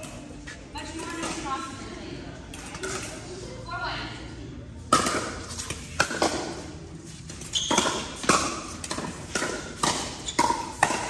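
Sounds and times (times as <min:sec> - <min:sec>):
paddles hitting plastic ball: 0:07.7 - 0:11.0.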